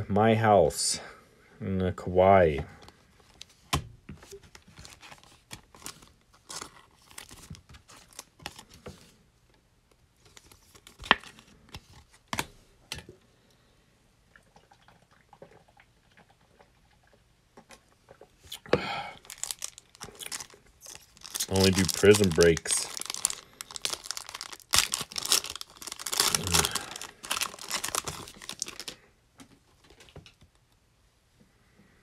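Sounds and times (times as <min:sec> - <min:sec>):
foil wrapper crinkle: 0:04.5 - 0:08.7, 0:19.2 - 0:29.0
cards shuffling: 0:19.3 - 0:30.2.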